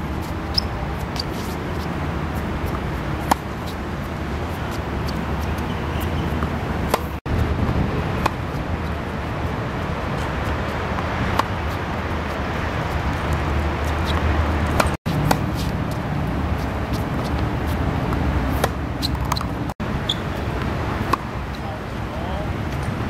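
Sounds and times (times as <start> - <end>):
tennis racket hitting ball: 0.2 - 7.2, 12.4 - 16.0, 16.7 - 19.5.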